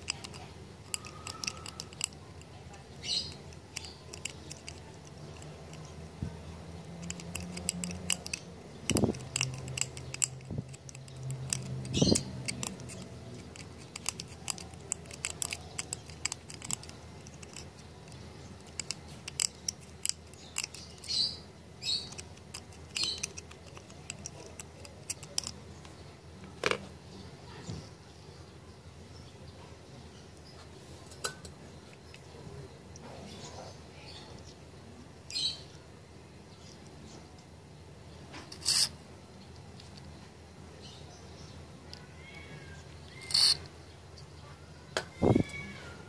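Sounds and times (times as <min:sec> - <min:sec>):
metal pick clicking and scraping: 0:00.0 - 0:06.0, 0:06.8 - 0:26.0, 0:38.3 - 0:39.0, 0:43.1 - 0:44.3.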